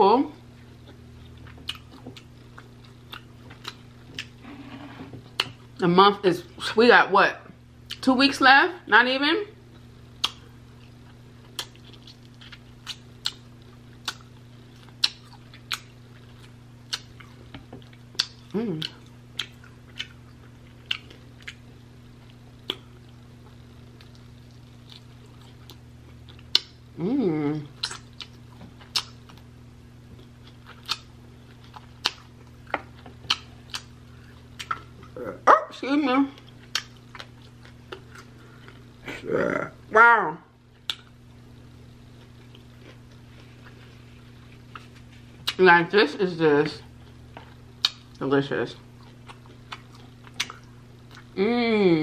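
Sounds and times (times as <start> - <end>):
faint low hum: 0.0 - 52.0
wet chewing and lip smacks: 9.7 - 26.8, 27.8 - 29.5, 30.2 - 35.1, 36.4 - 38.9, 40.7 - 41.2, 47.0 - 48.2, 48.9 - 51.3.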